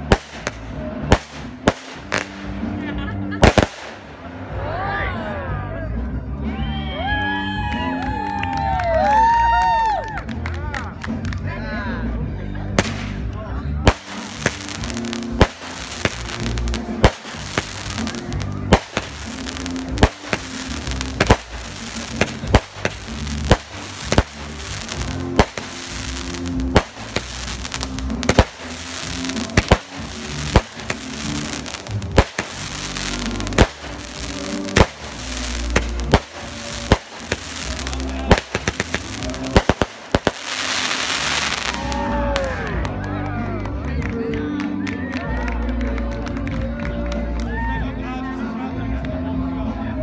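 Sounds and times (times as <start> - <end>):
fireworks bangs: 0.0 - 2.8, 3.4 - 4.2, 12.8 - 13.3, 13.9 - 42.5
music playing: 0.0 - 50.0.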